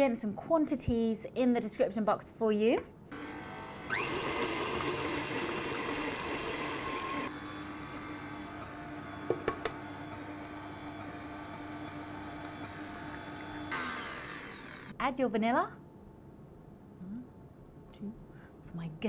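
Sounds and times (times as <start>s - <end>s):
stand mixer whirring: 3.2s - 14.9s.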